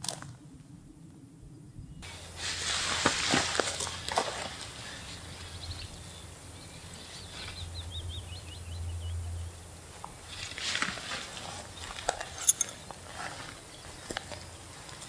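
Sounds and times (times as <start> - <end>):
low steady rumble: 0.0 - 14.9
rustles: 2.0 - 15.0
small bird singing: 4.8 - 10.5.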